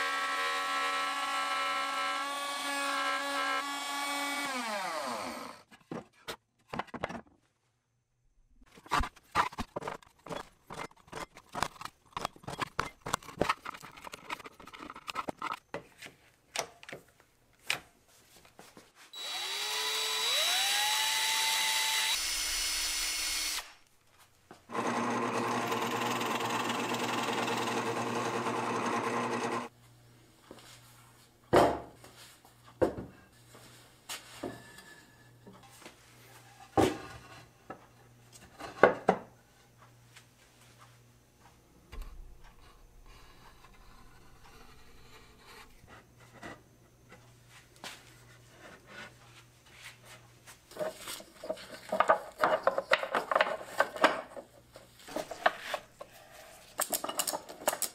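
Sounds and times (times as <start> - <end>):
drill press boring wood: 0.0 - 5.6, 19.2 - 23.8, 24.7 - 29.7
power tool motor whine: 0.0 - 5.6, 19.2 - 23.8, 24.7 - 29.7.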